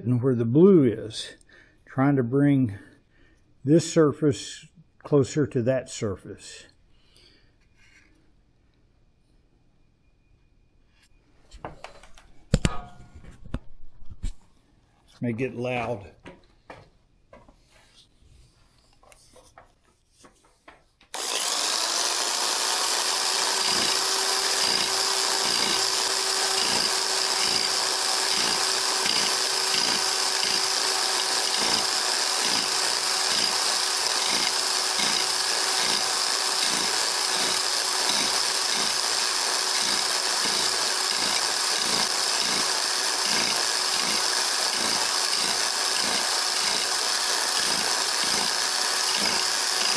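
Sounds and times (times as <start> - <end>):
power scraper on metal: 21.2 - 49.9.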